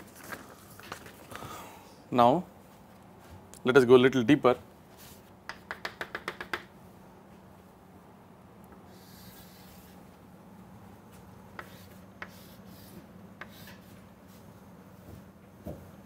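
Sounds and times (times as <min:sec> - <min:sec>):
chalk tapping on chalkboard: 0:05.0 - 0:06.7, 0:11.5 - 0:14.0
chalk scraping on chalkboard: 0:08.9 - 0:10.0, 0:11.6 - 0:14.5.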